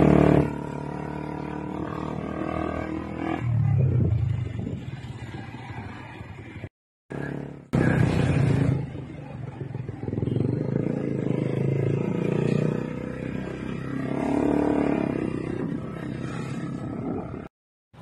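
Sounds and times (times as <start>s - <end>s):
road noise: 0.0s - 18.0s.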